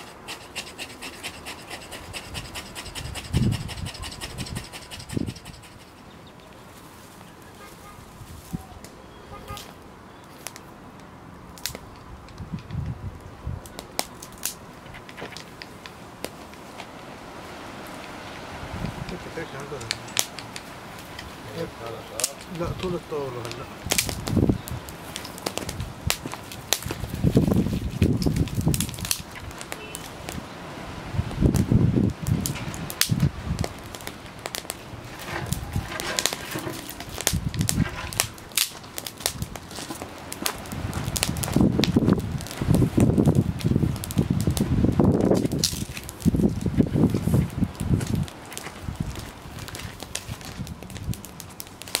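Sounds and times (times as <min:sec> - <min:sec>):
dry grass and twigs crackling: 0:00.0 - 0:52.0
sharp snaps and pops: 0:08.8 - 0:17.0, 0:18.8 - 0:21.4, 0:22.1 - 0:30.5, 0:31.3 - 0:52.0.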